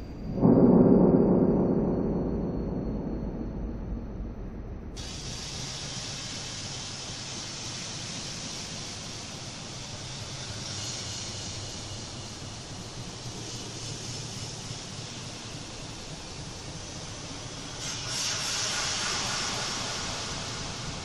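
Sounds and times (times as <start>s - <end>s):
low rumble: 0.0s - 5.6s.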